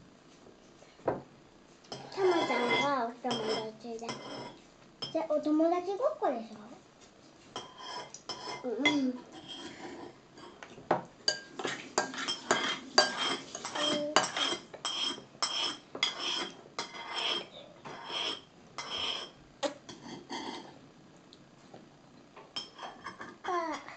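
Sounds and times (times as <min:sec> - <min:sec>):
spoon clinking on tableware: 0:01.9 - 0:05.2, 0:11.3 - 0:20.0, 0:22.6 - 0:23.3.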